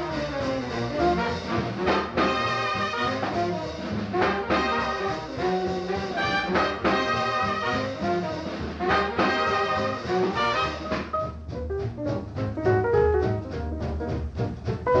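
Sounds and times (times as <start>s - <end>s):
brass horns playing: 0.0s - 11.3s
swing jazz band: 0.0s - 15.0s.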